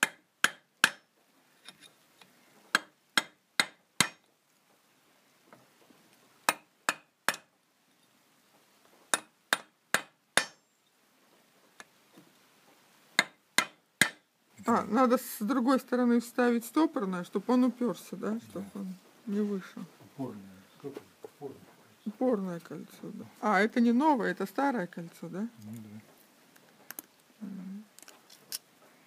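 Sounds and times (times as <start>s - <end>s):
hammer striking metal: 9.1s - 10.6s.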